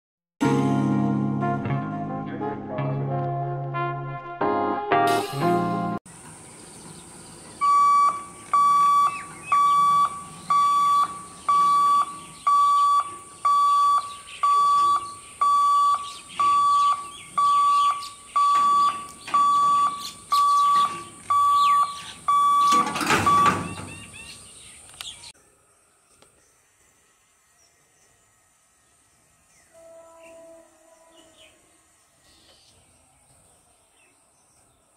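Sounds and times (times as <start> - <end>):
level crossing alarm beeps: 7.6 - 24.2.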